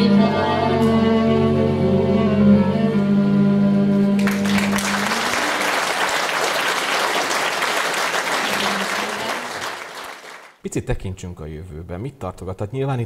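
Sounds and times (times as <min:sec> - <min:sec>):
violins cimbalom and double bass: 0:00.0 - 0:04.2
audience applause: 0:04.2 - 0:10.6.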